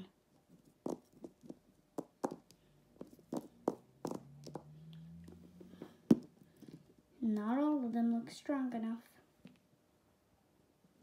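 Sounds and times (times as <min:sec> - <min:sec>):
plastic figurines tapping on table: 0:00.8 - 0:04.7.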